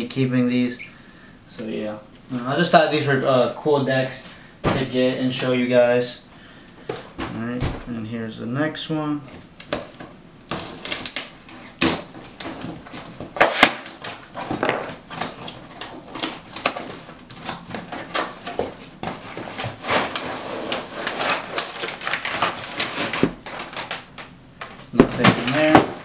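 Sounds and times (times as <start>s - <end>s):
cardboard and paper rustling: 9.2s - 26.0s.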